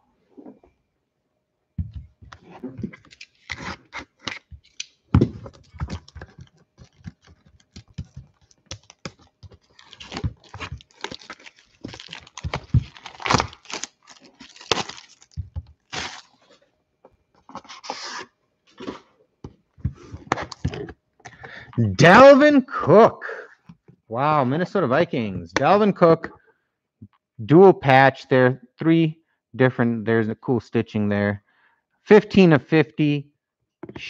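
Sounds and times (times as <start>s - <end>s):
cardboard rustling: 1.8s - 16.6s
cardboard tearing: 2.8s - 16.6s
clicks and taps on cardboard: 5.2s - 9.6s.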